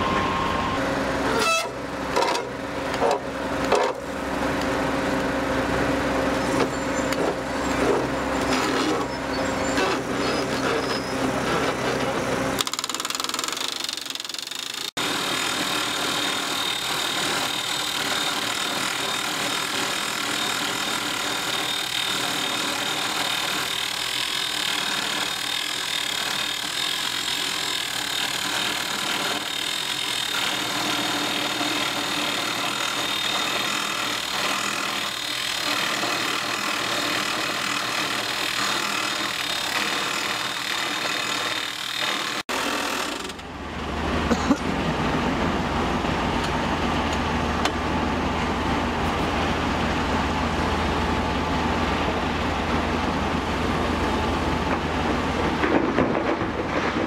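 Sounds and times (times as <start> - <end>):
low engine sound: 0.0 - 12.6, 43.1 - 57.0
drill rig drilling: 0.0 - 43.7.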